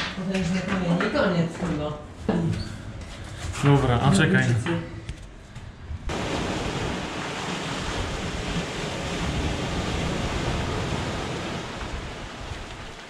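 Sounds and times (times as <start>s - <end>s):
surf washing over rocks: 6.1s - 13.0s.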